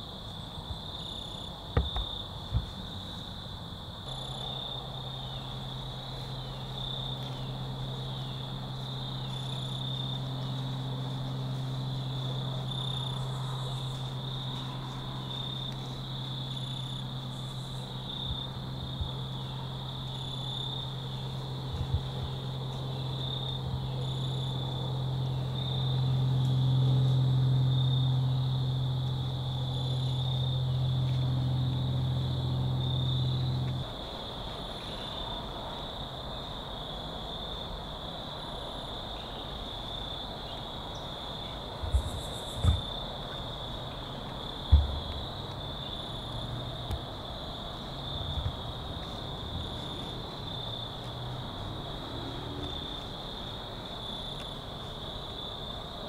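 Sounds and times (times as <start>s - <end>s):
crickets chirping: 0.0s - 56.0s
low hum: 4.0s - 34.9s.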